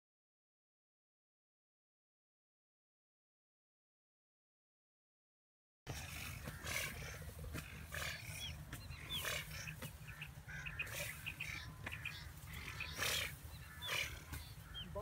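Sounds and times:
bird chirps: 0:05.9 - 0:15.0.

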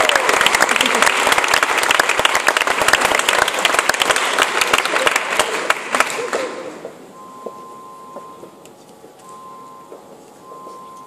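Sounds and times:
audience applause: 0:00.0 - 0:06.6
faint steady tone: 0:07.1 - 0:11.0.

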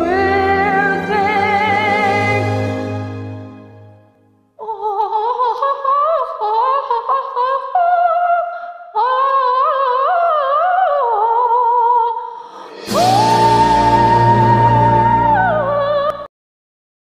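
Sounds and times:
orchestral backing music: 0:00.0 - 0:04.2, 0:12.5 - 0:16.2.

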